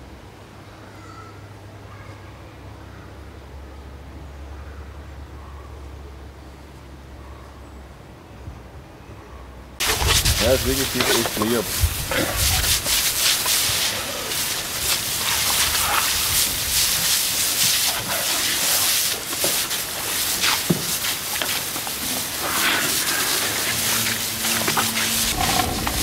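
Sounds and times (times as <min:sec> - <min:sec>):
hose water spraying: 0:09.8 - 0:26.0.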